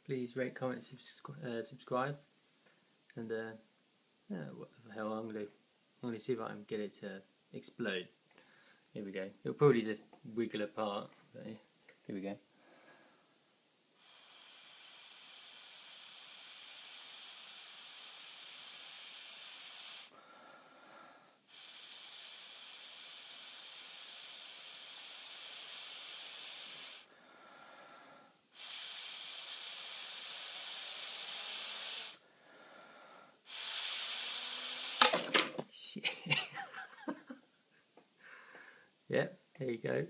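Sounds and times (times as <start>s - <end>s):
breathing in: 8.3s - 8.9s, 12.5s - 13.4s, 20.0s - 22.6s, 25.3s - 29.1s, 30.8s - 33.8s, 38.2s - 39.0s
breath blown through a straw: 14.0s - 35.0s.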